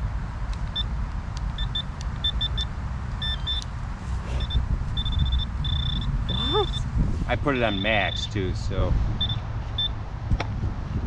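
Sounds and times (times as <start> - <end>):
metal detector beeps: 1.6 - 3.6, 4.3 - 6.8, 7.7 - 8.3, 9.2 - 9.9
low rumble: 3.8 - 11.0.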